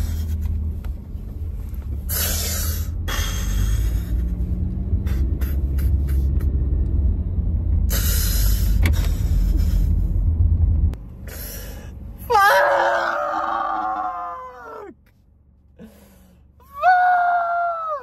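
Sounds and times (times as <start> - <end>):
low rumble inside car: 0.0 - 18.0
man exhaling heavily: 2.1 - 4.4.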